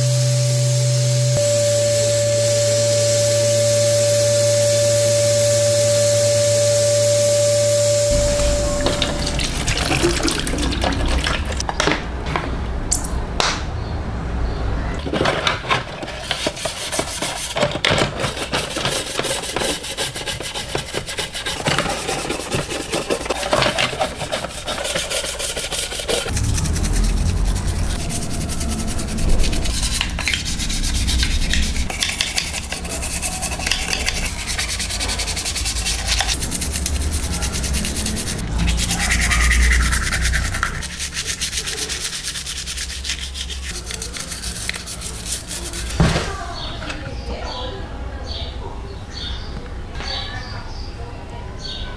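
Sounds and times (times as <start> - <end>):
water pouring into tub: 8.8 - 11.6
brush scrubbing plastic parts: 15.1 - 46.0.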